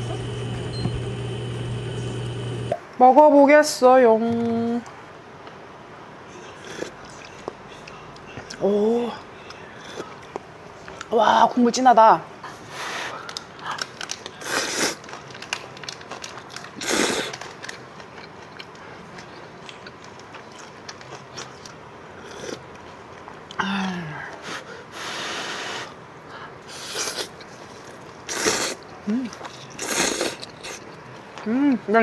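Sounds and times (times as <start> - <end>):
slurping noodles: 14.4 - 15.0, 16.8 - 17.4, 28.3 - 28.8, 29.7 - 30.8.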